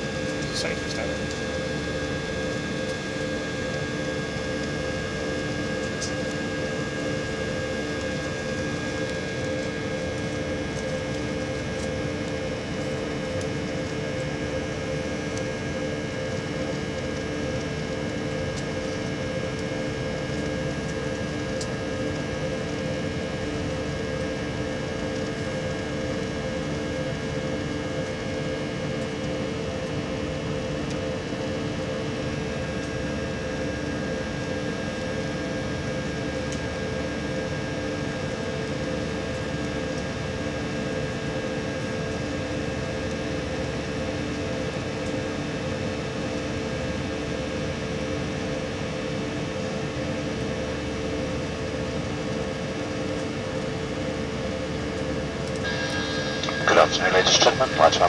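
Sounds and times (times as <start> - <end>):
jet cabin engine and airflow noise: 0.0 - 11.2, 55.2 - 58.0
steady tonal hum: 55.3 - 58.0.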